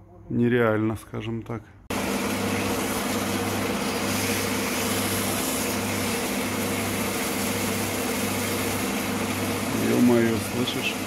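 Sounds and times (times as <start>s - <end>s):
drill press motor humming: 1.9s - 11.0s.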